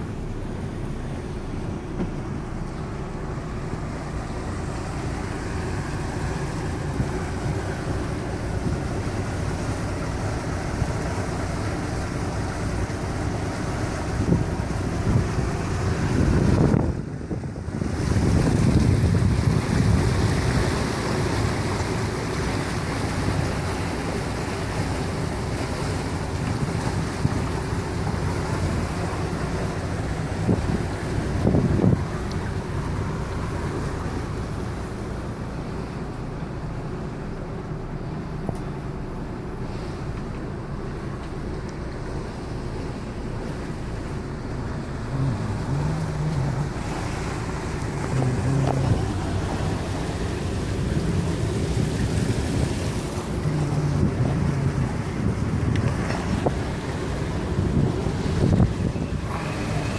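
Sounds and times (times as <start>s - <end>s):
boat engine drone: 0.0s - 59.9s
rushing water from wake: 0.0s - 59.9s
wind buffeting microphone: 12.1s - 22.3s, 26.1s - 35.5s, 42.8s - 59.9s.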